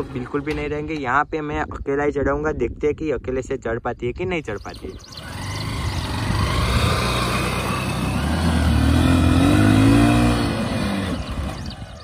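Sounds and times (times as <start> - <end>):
motorcycle engine pulling under load: 0.0 - 0.8, 4.7 - 12.0.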